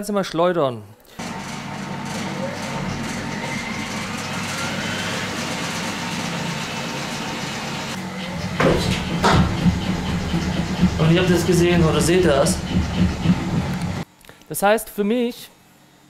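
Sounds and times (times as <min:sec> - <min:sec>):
washing machine motor whining: 0:01.2 - 0:14.0
washing machine drum knocking: 0:01.9 - 0:14.0.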